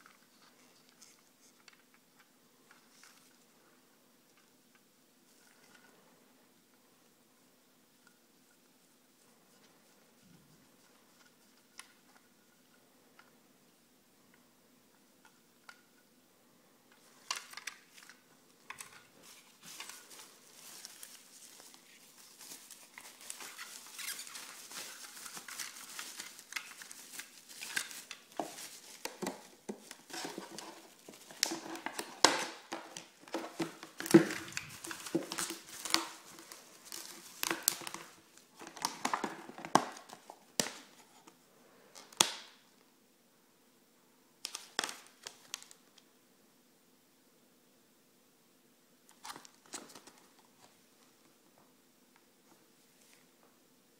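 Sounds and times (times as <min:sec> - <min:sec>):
plastic packaging crinkling: 0:17.1 - 0:40.9.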